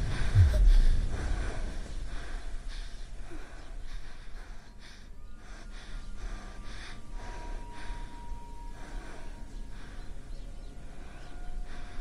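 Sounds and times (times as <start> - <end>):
low rumble: 0.0 - 4.6.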